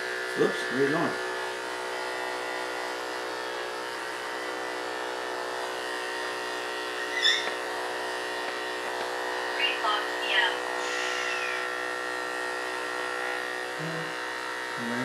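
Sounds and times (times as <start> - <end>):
electric clippers buzzing: 0.0 - 15.0
high squeak: 7.1 - 7.6.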